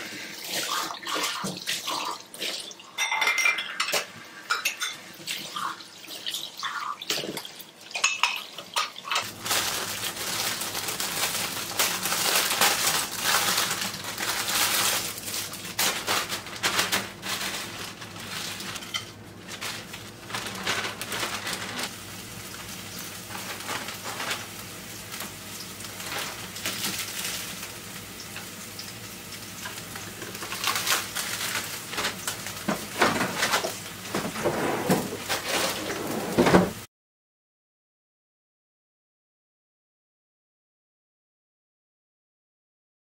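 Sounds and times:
plastic packaging crinkling: 0:09.2 - 0:34.3
light kitchen clatter: 0:29.6 - 0:36.8.

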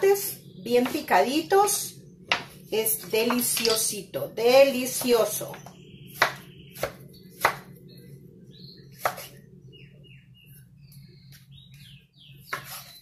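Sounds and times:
steady low hum: 0:00.0 - 0:13.0
knife chopping on wooden board: 0:06.1 - 0:07.6, 0:09.0 - 0:09.3, 0:12.5 - 0:12.9.

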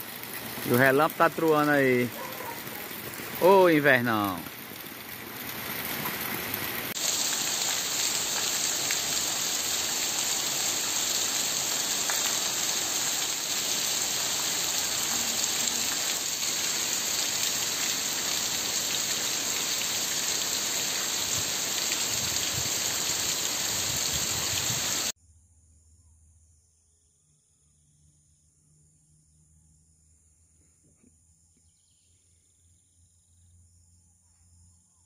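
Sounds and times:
heavy rain on cobblestones: 0:00.0 - 0:25.1.

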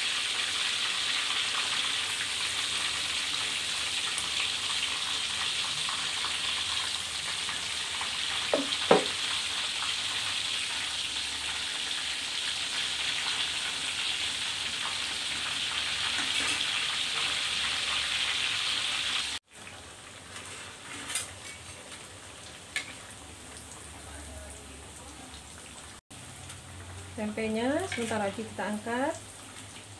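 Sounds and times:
deep-frying sizzle in oil: 0:00.0 - 0:29.9
brief knock: 0:08.6 - 0:09.1.

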